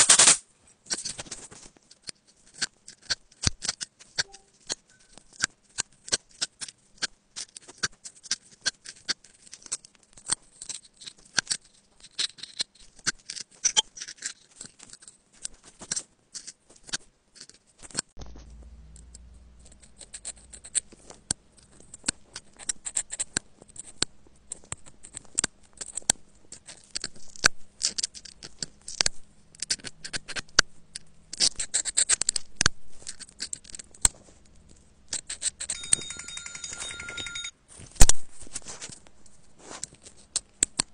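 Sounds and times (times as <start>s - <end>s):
faint low hum: 18.2s - 40.9s.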